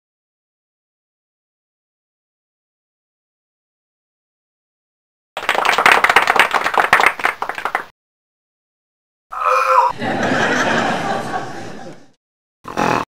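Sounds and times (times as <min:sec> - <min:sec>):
applause: 0:05.4 - 0:07.9
high-pitched voice: 0:09.3 - 0:10.0.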